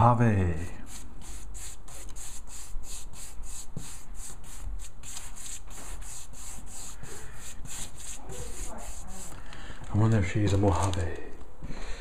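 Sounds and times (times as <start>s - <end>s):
paintbrush scrubbing wall: 0.5s - 9.4s.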